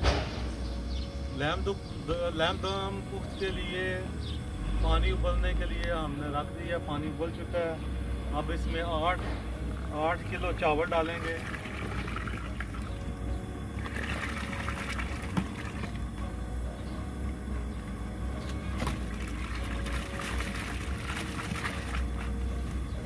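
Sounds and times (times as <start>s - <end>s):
steady low rumble: 0.0s - 23.0s
boiling water bubbling: 7.9s - 23.0s.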